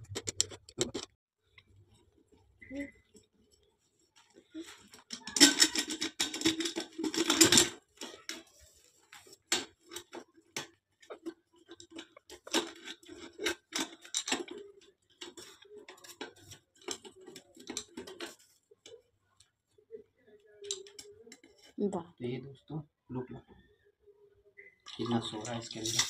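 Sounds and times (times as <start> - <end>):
metal nuts clicking and rattling: 0.0 - 1.1, 4.6 - 8.7, 9.5 - 19.1, 20.6 - 21.7.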